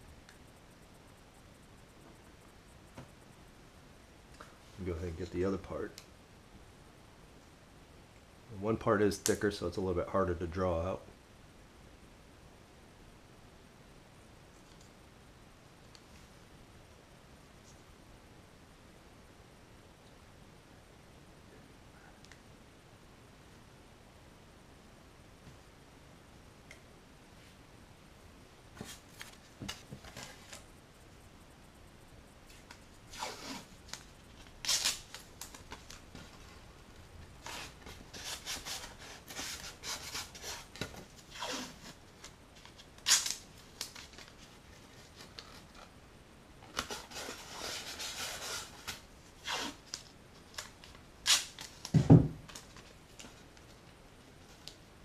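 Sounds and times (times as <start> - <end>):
tape rubbed down by hand: 32.5 - 34.0, 34.6 - 36.4, 37.4 - 42.0, 46.7 - 51.7
tape being pulled and torn: 32.5 - 36.3, 37.4 - 42.0, 42.6 - 44.5, 46.7 - 51.9
dull thump: 51.9 - 52.4.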